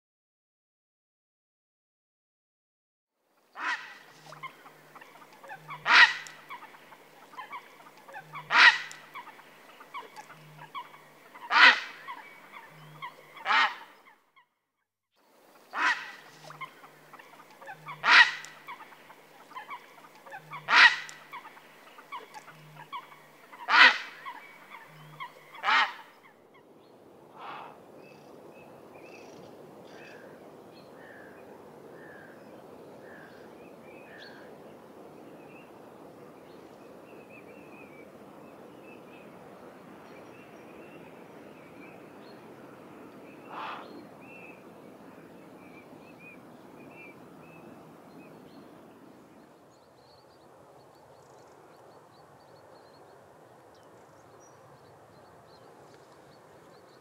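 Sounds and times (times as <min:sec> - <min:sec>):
steady outdoor hiss: 0:03.1 - 0:14.2, 0:15.1 - 0:57.0
bird harsh calls: 0:03.6 - 0:14.1, 0:15.7 - 0:26.2, 0:43.4 - 0:44.0.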